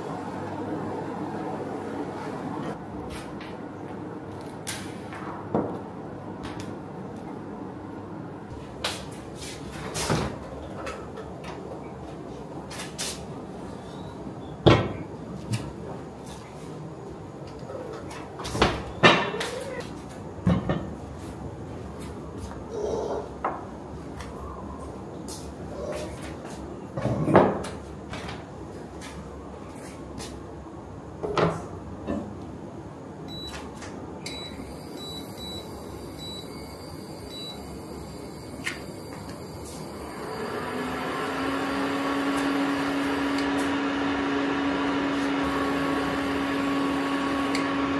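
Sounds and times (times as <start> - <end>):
cooker beeps: 33.3 - 33.6, 34.2 - 43.6, 45.4 - 47.8
high-pitched cooker whine: 33.3 - 47.9.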